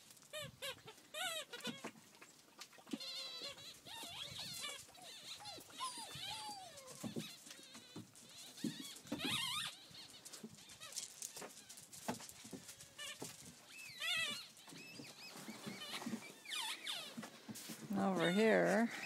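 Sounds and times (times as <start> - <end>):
puppies yelping and whining: 0.2 - 2.0, 2.7 - 17.4, 18.0 - 19.0
small knocks and scuffles: 10.2 - 18.8.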